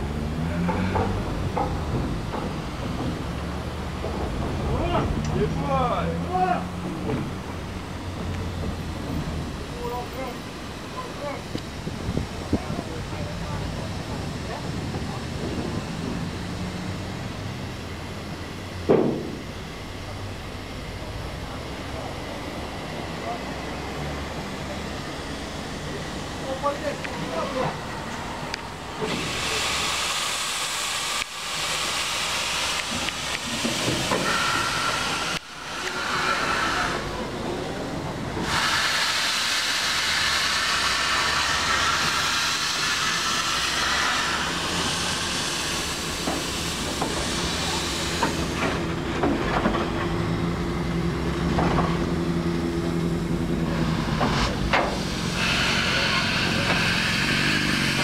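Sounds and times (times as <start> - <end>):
steam locomotive hissing steam: 20.8 - 58.0.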